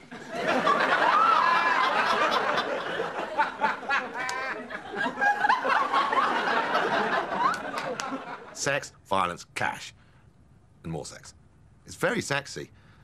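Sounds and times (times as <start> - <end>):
person giggling and laughing: 3.2 - 5.7.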